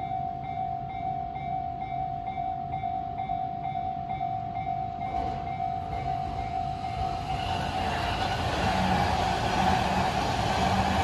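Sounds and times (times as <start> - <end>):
approaching train rumble: 3.7 - 11.0.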